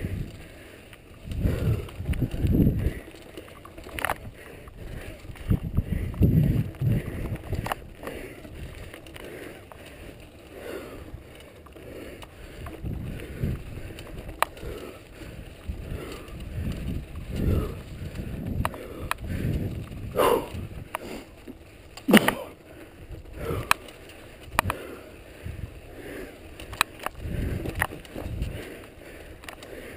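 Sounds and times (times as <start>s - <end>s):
wind on microphone: 0.0s - 0.5s, 1.1s - 3.1s, 4.2s - 8.9s, 12.5s - 20.9s, 25.4s - 26.0s, 26.7s - 28.8s
bike clicks and rattles: 0.0s - 29.9s
bike tyres rumbling over rocks: 0.0s - 29.9s.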